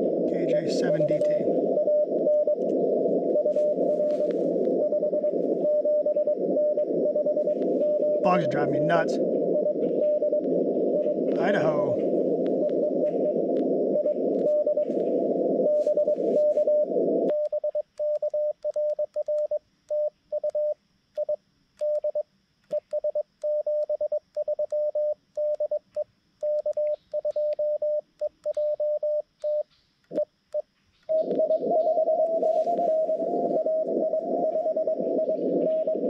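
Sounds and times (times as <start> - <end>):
radio band hiss: 0.0 - 17.4, 31.1 - 36.0
morse code tone: 0.0 - 20.8, 31.1 - 36.0.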